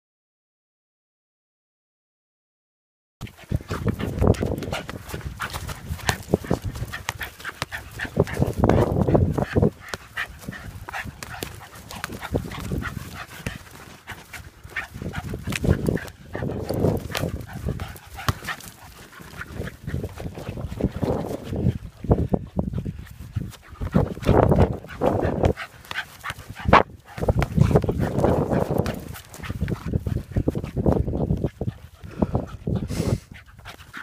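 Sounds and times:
dog making noises: 3.2 - 21.9, 22.5 - 34.0
football knocks and scuffs: 3.8 - 14.3, 15.0 - 21.6, 23.4 - 31.5.

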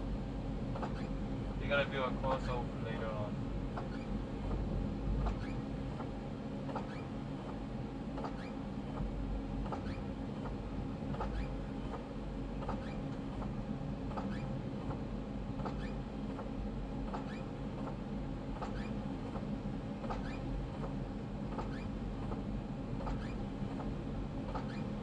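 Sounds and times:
train car rumbling: 0.0 - 25.0
wheels squeaking and clicking: 0.8 - 1.1, 6.7 - 7.1, 8.2 - 8.6, 9.7 - 10.0, 11.2 - 11.5, 12.7 - 13.0, 14.2 - 14.5, 15.6 - 16.0, 17.1 - 17.4, 18.6 - 18.9, 20.1 - 20.4, 21.6 - 21.9, 23.0 - 23.4, 24.5 - 24.9.

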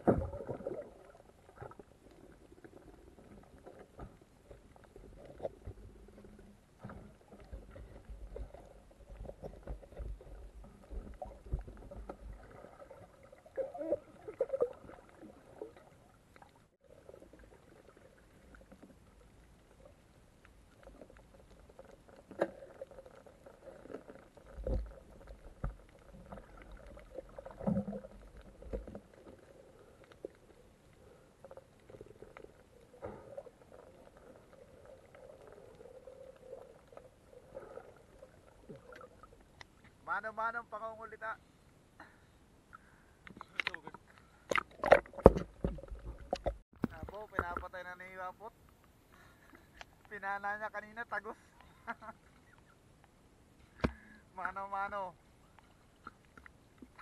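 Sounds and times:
dull underwater bumps: 0.0 - 16.0, 44.5 - 48.6
underwater water rumbling: 0.0 - 40.0, 43.4 - 50.1.

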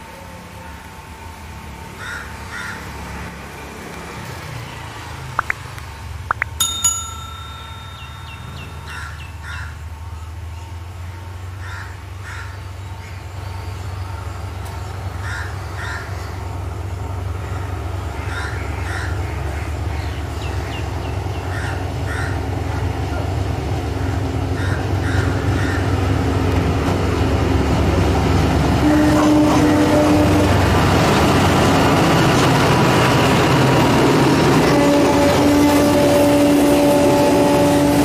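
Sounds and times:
diesel locomotive rumble: 0.0 - 38.0
crows cawing: 2.0 - 2.9, 8.9 - 9.8, 11.6 - 12.6, 15.2 - 16.3, 18.2 - 19.2, 21.5 - 22.4, 24.0 - 26.0.

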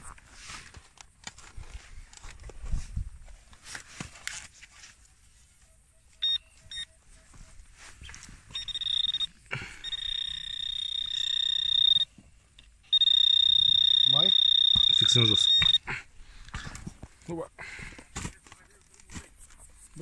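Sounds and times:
metal detector beeping tone: 6.2 - 12.2, 12.8 - 15.9.

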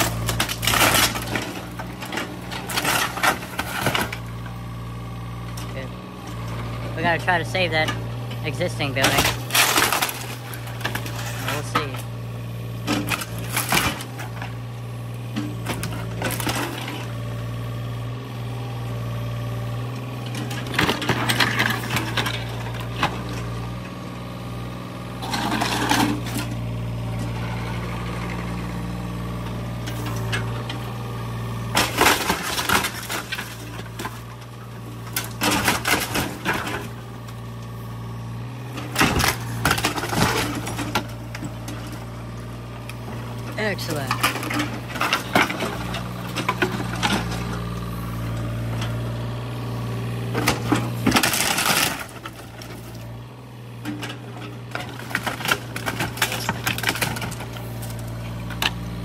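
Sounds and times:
wood cracking and splintering: 0.0 - 4.3, 8.5 - 12.2, 12.8 - 17.2, 31.6 - 37.7, 38.4 - 48.5, 50.2 - 53.1, 54.0 - 58.8
diesel engine running: 0.0 - 59.0.

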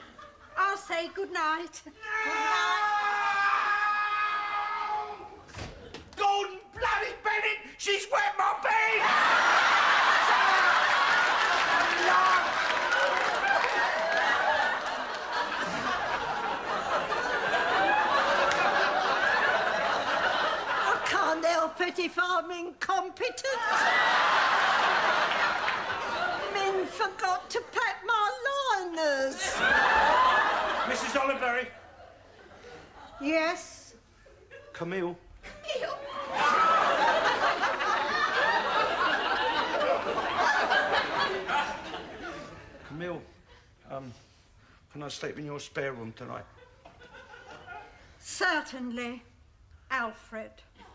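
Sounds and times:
audience laughing: 9.0 - 21.4, 23.6 - 27.8, 29.3 - 33.1, 35.4 - 42.8.

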